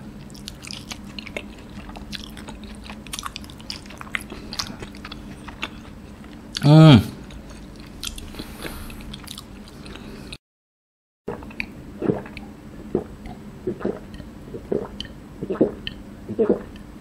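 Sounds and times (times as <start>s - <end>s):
chewing: 0.2s - 6.6s, 7.3s - 10.4s
gulping swallows: 11.3s - 16.8s.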